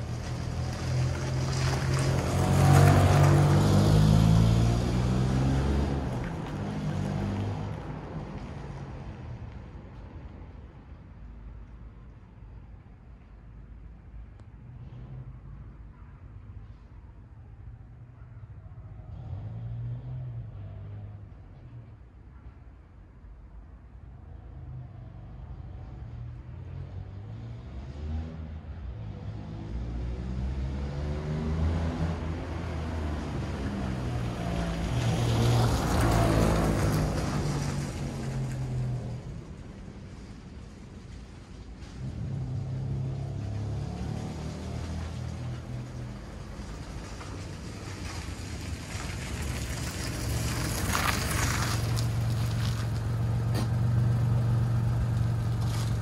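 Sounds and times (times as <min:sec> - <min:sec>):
car driving away: 0:00.0 - 0:09.4, 0:24.7 - 0:56.0
car engine accelerating: 0:41.9 - 0:56.0.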